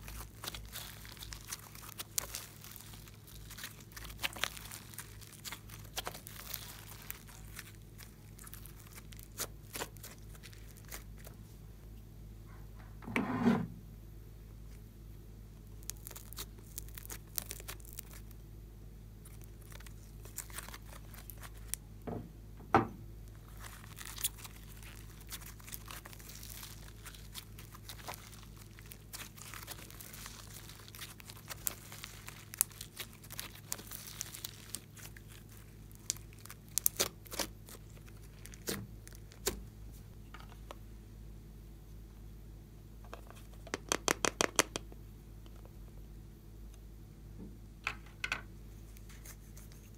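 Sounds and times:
slime crackling and popping: 0.0s - 11.4s, 15.6s - 18.4s, 19.2s - 21.8s, 23.3s - 39.6s, 43.6s - 44.9s.

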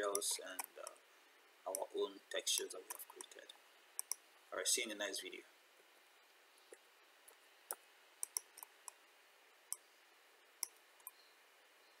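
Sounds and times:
faint steady hiss: 0.0s - 12.0s
mouse and keyboard clicks: 2.5s - 3.4s, 4.0s - 4.2s, 7.7s - 9.0s.

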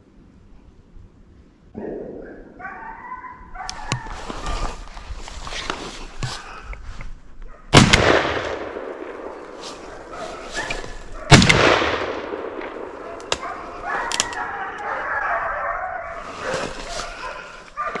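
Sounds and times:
shotgun shots with echo: 7.7s - 9.6s, 11.3s - 13.5s.

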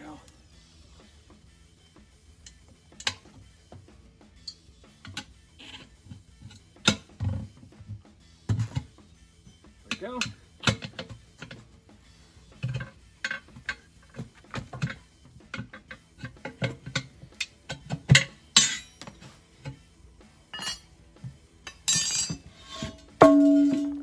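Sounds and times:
metal bar clanging on pavement: 18.1s - 19.0s, 21.7s - 24.0s.

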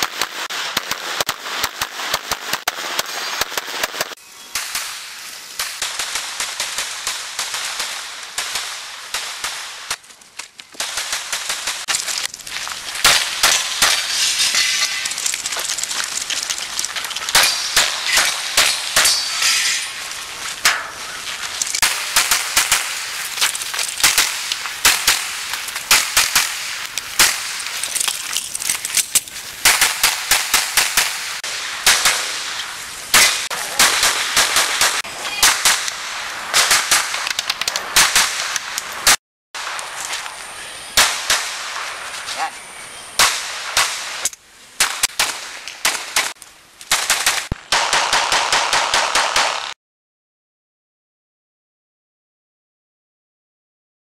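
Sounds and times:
pistol shots in rapid strings: 46.9s - 49.8s.

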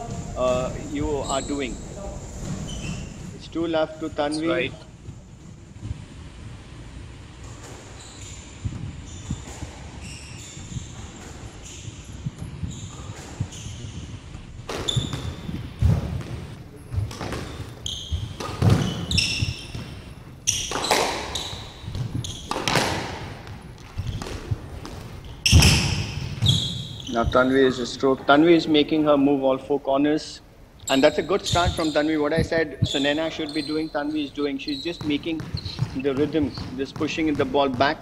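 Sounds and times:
shoes squeaking on wooden floor: 0.0s - 6.0s, 7.3s - 27.6s, 30.9s - 38.0s
squash ball hitting rackets and walls: 7.3s - 27.0s, 35.0s - 38.0s.

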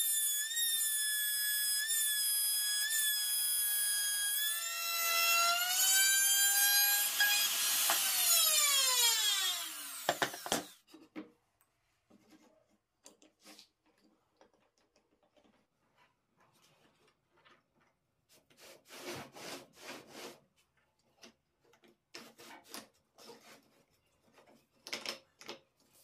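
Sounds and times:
table saw motor whine: 5.5s - 10.8s.

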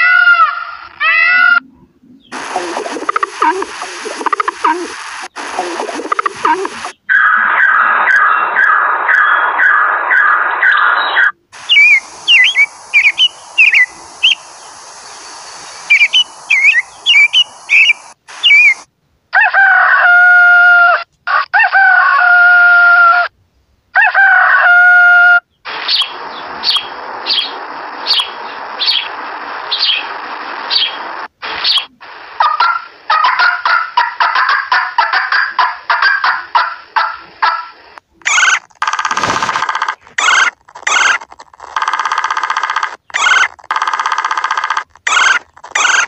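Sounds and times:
turkey calling: 0.0s - 14.4s, 15.9s - 18.8s, 31.6s - 41.8s, 42.9s - 46.0s
quail chirping: 1.3s - 14.8s, 15.6s - 18.8s, 25.7s - 30.1s, 31.6s - 41.7s, 42.9s - 43.8s, 44.8s - 46.0s
rooster crowing: 19.4s - 23.3s, 24.0s - 25.4s.

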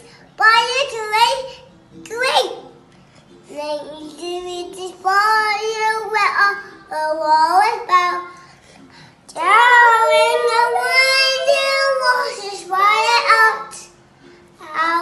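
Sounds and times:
child singing: 3.5s - 8.4s, 9.3s - 14.0s, 14.6s - 15.0s.

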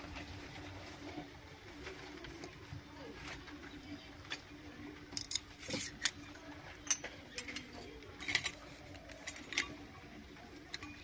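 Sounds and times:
small metal pots clinking: 4.2s - 11.0s.

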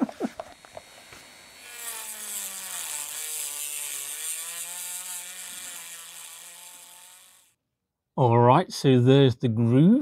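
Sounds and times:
rotary tool grinding metal: 0.4s - 7.6s.

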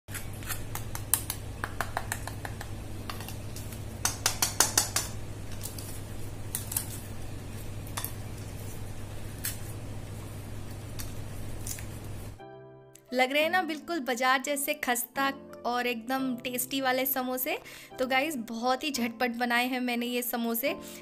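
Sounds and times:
fried pastry crackling: 5.4s - 12.4s.

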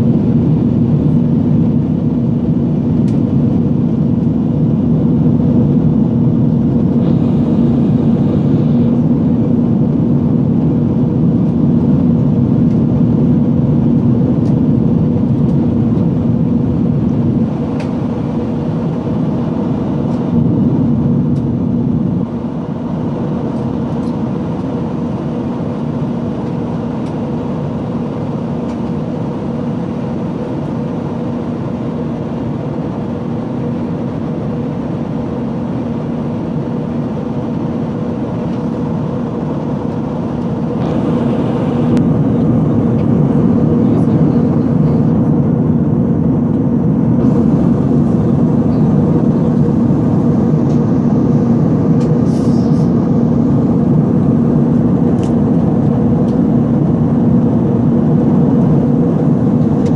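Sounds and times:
cabin air rushing: 0.0s - 27.5s, 36.8s - 59.9s
aircraft engine hum: 0.0s - 59.9s.

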